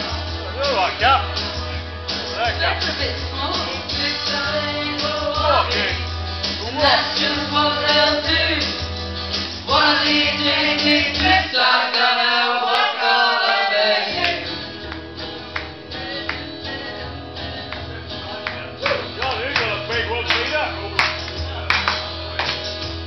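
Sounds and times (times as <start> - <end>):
backing track music: 0.0 - 23.0
woman singing karaoke: 2.9 - 6.0, 6.6 - 8.9, 9.6 - 14.7.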